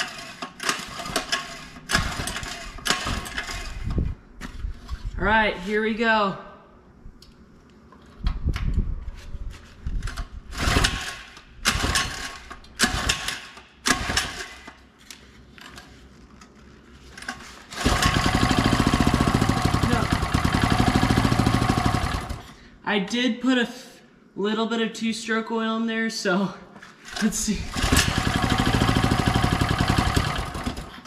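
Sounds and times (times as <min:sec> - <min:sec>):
recoil starter yanks: 0:17.3 - 0:22.5, 0:27.2 - 0:31.0
small engine running: 0:17.7 - 0:22.6, 0:27.6 - 0:31.0.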